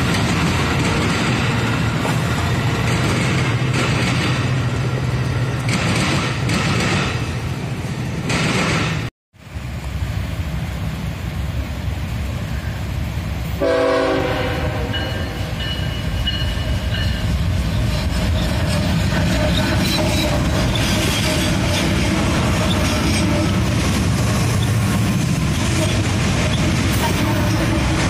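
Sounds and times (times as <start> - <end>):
diesel locomotive engine: 0.0 - 28.0
train wheels on rails: 0.0 - 28.0
locomotive horn blast: 13.6 - 15.6.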